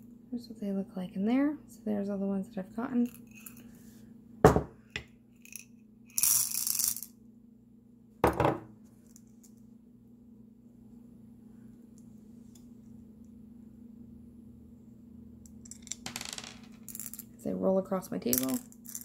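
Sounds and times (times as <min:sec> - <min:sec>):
pearls clattering: 0:15.6 - 0:17.3, 0:18.3 - 0:19.0.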